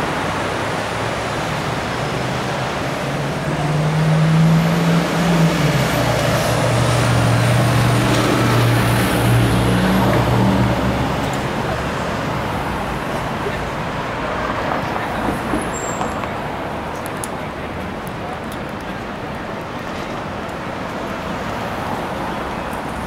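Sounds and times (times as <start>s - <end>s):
heavy vehicle engine drone: 0.0s - 15.5s
passing cars: 0.0s - 23.0s.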